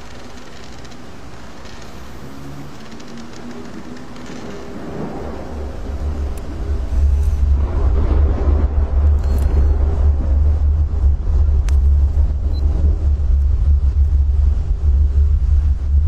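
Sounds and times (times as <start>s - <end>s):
deep low rumble: 4.2s - 16.0s.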